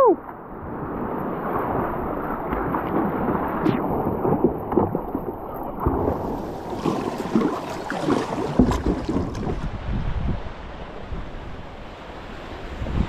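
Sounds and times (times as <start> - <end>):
churning white water: 0.0 - 13.0
wind on microphone: 0.0 - 13.0
water slapping against kayak hull: 0.9 - 9.8.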